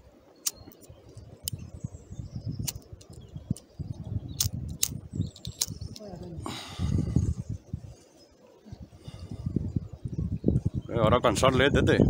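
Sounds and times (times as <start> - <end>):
low rumbling: 1.3 - 8.0.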